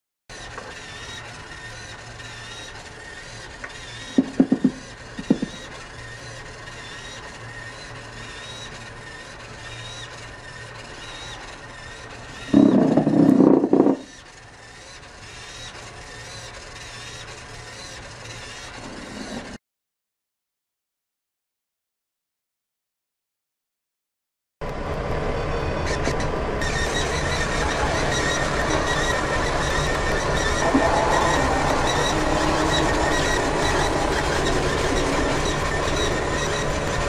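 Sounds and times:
steady hum: 12.2s - 14.1s, 24.8s - 37.0s
rubber tyres scraping hard floor: 12.5s - 14.1s, 18.8s - 19.6s.

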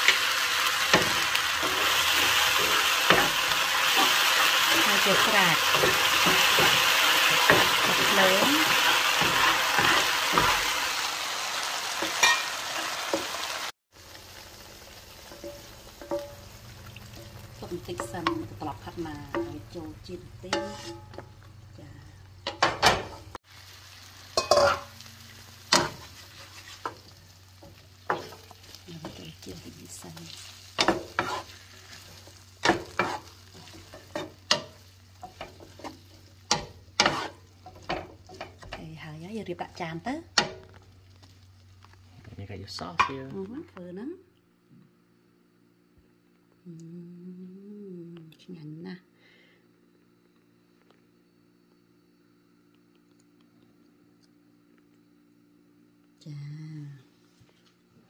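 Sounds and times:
garlic sizzling in a frying pan: 0.0s - 44.1s
steady low hum: 14.1s - 23.4s, 43.1s - 58.0s
wooden spatula scraping a pan: 20.4s - 21.3s, 25.7s - 27.1s, 30.4s - 38.6s.

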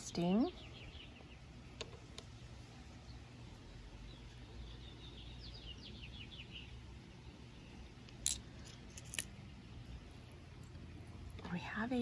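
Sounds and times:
stone pendants clicking on table: 8.1s - 9.3s.

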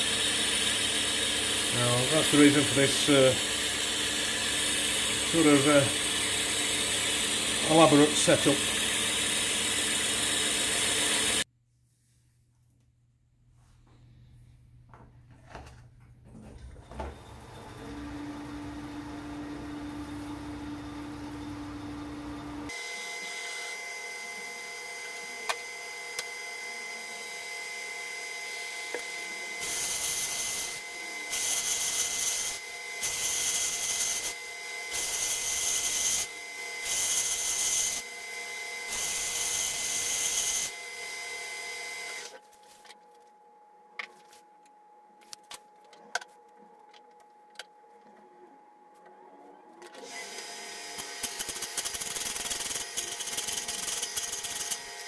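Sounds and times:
cutting tool cutting metal: 0.0s - 11.4s, 28.9s - 38.1s, 38.9s - 40.8s, 50.0s - 55.0s
lathe whining: 0.0s - 11.4s, 17.2s - 42.4s.

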